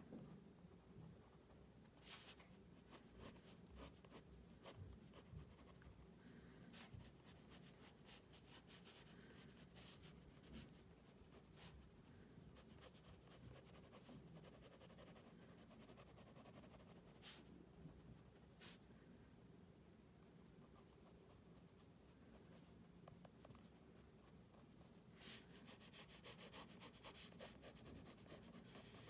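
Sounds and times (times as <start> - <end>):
pen scratching on paper: 25.2 - 29.0.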